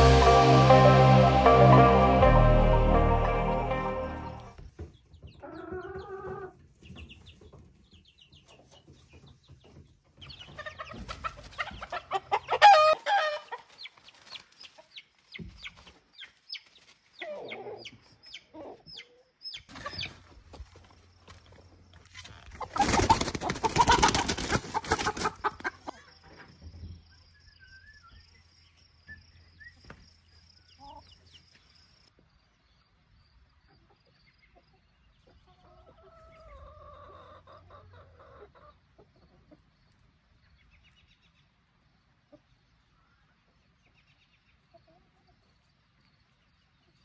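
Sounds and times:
chickens clucking: 0:04.8 - 0:21.0, 0:22.4 - 0:27.2, 0:30.7 - 0:31.3, 0:33.6 - 0:41.0, 0:42.2 - 0:45.7
drawn-out chicken call: 0:10.4 - 0:13.8, 0:22.4 - 0:26.4, 0:35.4 - 0:39.6
wing-flapping and squawking: 0:22.2 - 0:25.8.

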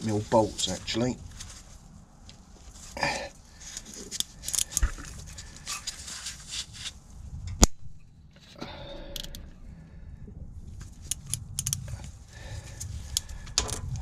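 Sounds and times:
ratchet clicking: 0:11.1 - 0:11.8.

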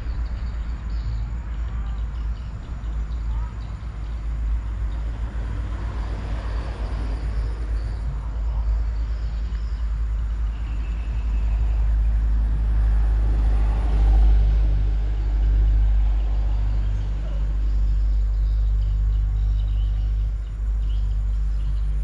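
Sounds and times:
road traffic rumbling: 0:00.0 - 0:22.0
heavy vehicle passing: 0:04.2 - 0:09.3, 0:11.3 - 0:18.1.

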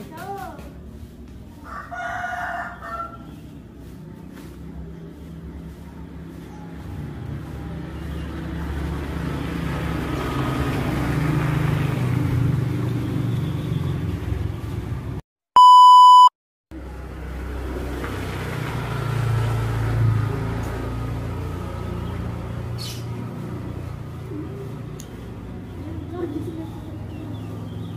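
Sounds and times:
electronic bleep tone: 0:15.6 - 0:16.3.

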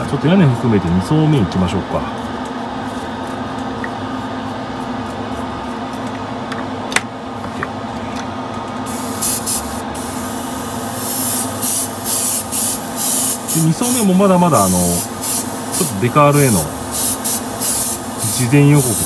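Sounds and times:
exhaust fan running: 0:00.0 - 0:19.0
airbrush spraying in hissing bursts: 0:08.9 - 0:19.0.

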